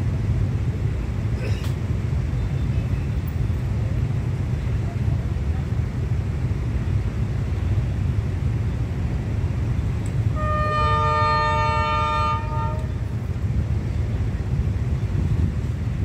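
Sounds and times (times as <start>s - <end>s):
steady low rumble: 0.0s - 16.0s
locomotive horn chord: 10.3s - 13.1s.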